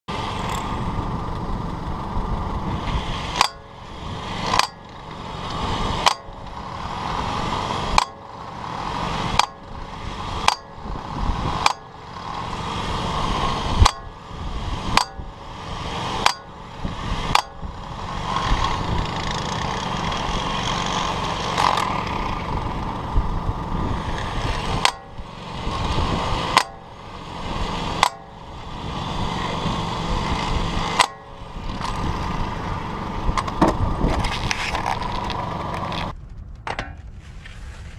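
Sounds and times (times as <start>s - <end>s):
impact wrenches hammering: 3.2s - 22.1s, 24.1s - 28.5s, 29.3s - 32.1s.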